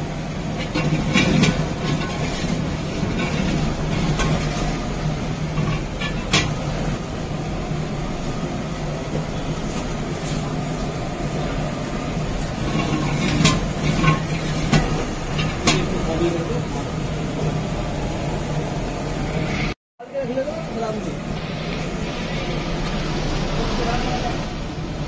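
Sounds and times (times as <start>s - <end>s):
low rumbling roar: 0.0s - 19.8s.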